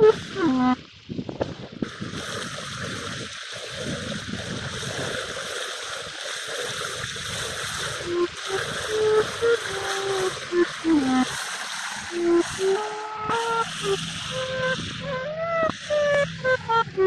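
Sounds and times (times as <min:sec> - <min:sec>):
xaphoon note: 0:08.1 - 0:11.3, 0:12.1 - 0:17.0.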